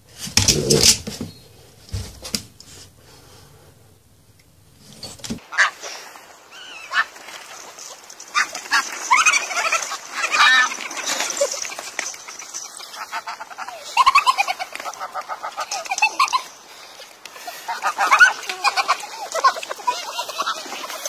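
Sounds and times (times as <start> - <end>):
geese honking: 5.4 - 21.0.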